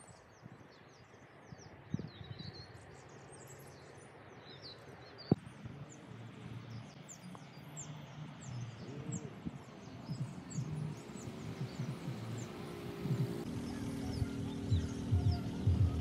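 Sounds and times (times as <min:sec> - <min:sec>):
songbirds chirping: 0:00.0 - 0:16.0
low steady rumble: 0:11.4 - 0:16.0.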